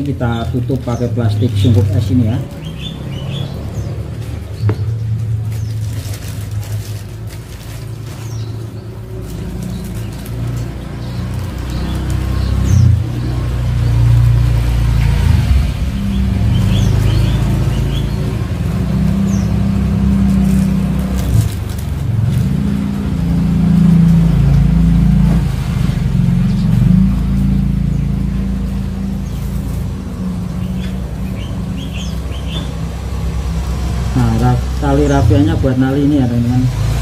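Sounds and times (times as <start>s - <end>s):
engine rumbling: 0.0s - 37.0s
bird chirps: 0.9s - 5.9s, 8.0s - 20.7s, 26.3s - 33.4s.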